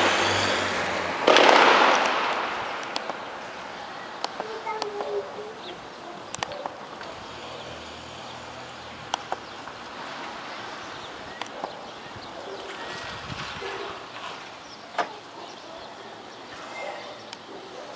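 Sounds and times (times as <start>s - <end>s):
outdoor background noise: 0.0s - 17.9s
distant gunshots: 1.2s - 3.4s.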